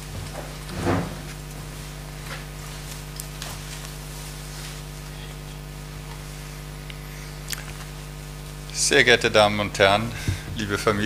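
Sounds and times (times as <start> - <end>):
sound system hum and hiss: 0.0 - 11.0.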